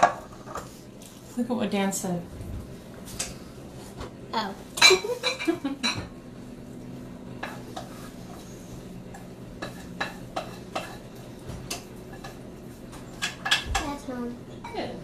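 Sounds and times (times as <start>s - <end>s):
steady low hum: 0.0s - 15.0s
utensil scraping a pan: 7.4s - 13.6s.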